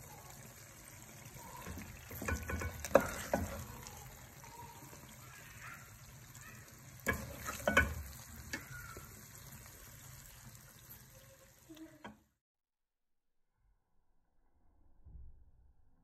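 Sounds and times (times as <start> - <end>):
faint sizzle from pot: 0.0 - 12.4
spatula scraping metal pot: 1.7 - 4.2, 7.0 - 8.6.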